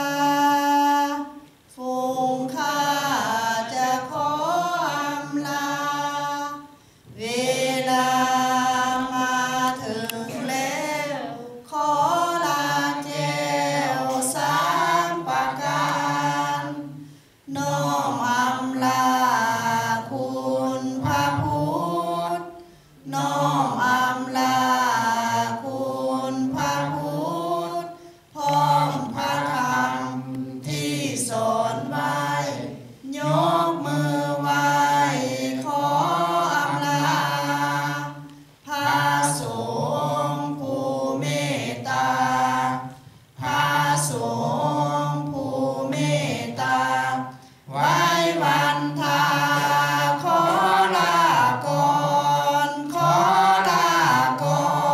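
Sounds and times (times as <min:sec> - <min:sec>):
low voices chanting in unison: 0:00.0 - 0:54.9.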